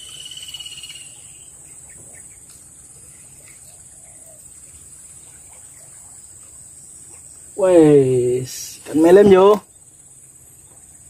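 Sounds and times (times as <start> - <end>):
high-pitched insect drone: 0.0 - 1.8.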